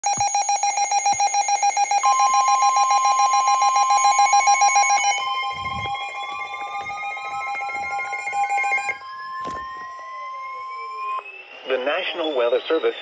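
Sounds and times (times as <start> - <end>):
rapid beeping alarm: 0.0 - 13.0
steady alert tone: 0.9 - 13.0
rising siren tone: 2.0 - 13.0.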